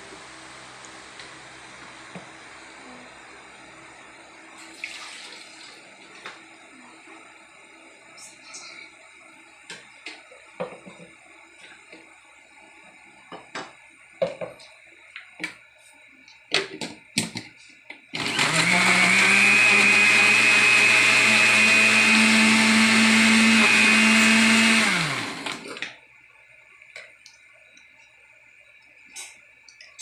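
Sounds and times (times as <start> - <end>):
blender motor running: 18.1 - 25.8.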